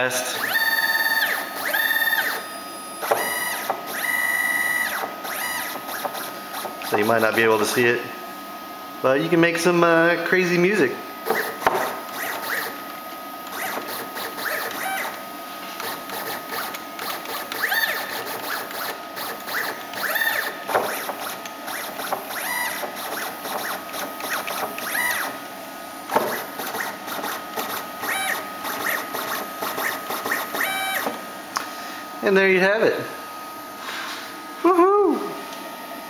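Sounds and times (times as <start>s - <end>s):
stepper motors whining: 0.0s - 7.7s, 11.2s - 12.8s, 13.4s - 25.4s, 26.1s - 31.2s.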